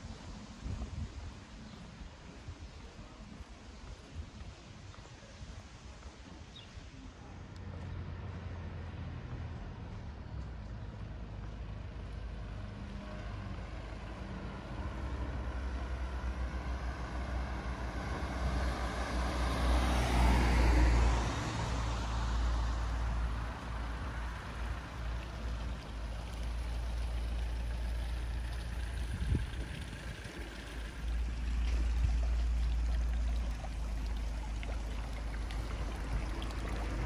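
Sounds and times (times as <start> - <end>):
motor vehicle passing by: 7.7 - 37.0
steady low rumble: 22.9 - 37.0.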